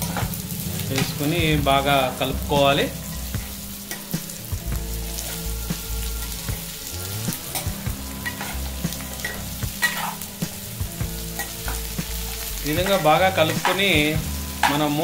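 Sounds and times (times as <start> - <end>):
spatula scraping a pan: 0.0 - 1.2, 3.0 - 15.0
vegetables sizzling in oil: 0.0 - 15.0.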